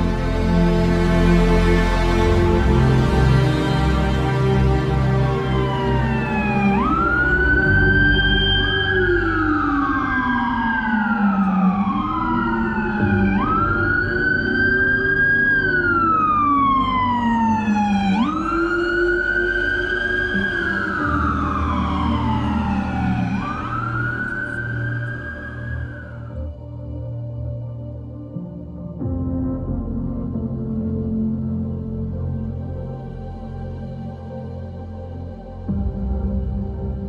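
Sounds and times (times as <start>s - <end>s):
wailing siren: 0.0s - 27.0s.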